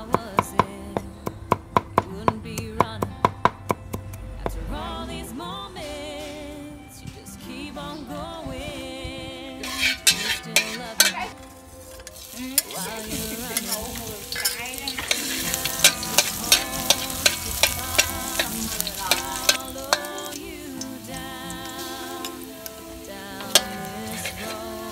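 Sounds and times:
utensil clacking on pan: 9.6 - 11.2, 12.0 - 24.9
hot oil sizzling: 9.6 - 24.9.

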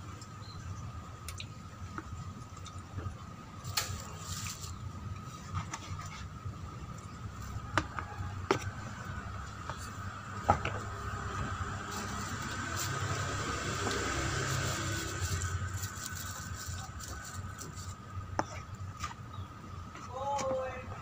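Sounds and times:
man chewing crispy food: 10.8 - 18.3.

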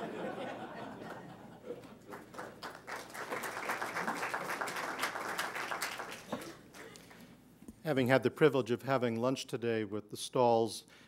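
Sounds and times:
audience applauding: 2.0 - 7.2.

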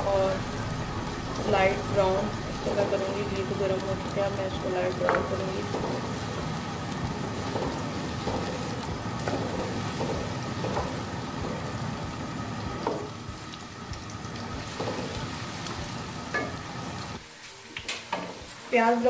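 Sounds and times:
onions sizzling in hot fat: 0.0 - 19.0.

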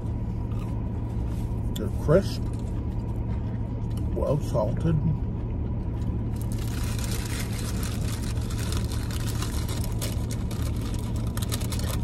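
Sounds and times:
low hum inside car: 0.0 - 12.0
paper wrappers crinkling: 6.4 - 12.0.

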